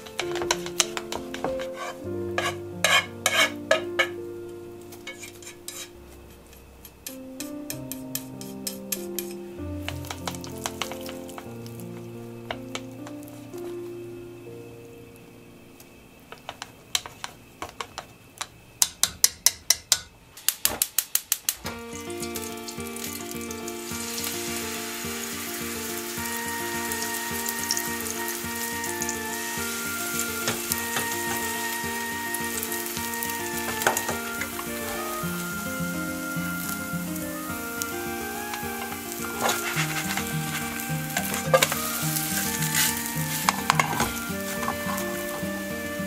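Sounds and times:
batter sizzling in a frying pan: 0:00.0 - 0:04.2, 0:05.0 - 0:06.0, 0:07.9 - 0:13.7, 0:20.4 - 0:46.0
chopsticks tapping a bowl: 0:00.0 - 0:04.2, 0:06.5 - 0:11.5, 0:38.2 - 0:45.6
background music: 0:00.0 - 0:15.7, 0:21.7 - 0:46.0.

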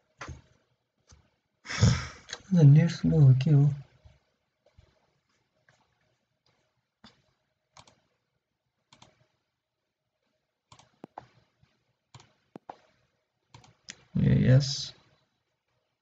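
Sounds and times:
computer mouse clicks: 0:05.7 - 0:08.1, 0:08.9 - 0:09.4, 0:10.7 - 0:14.1.

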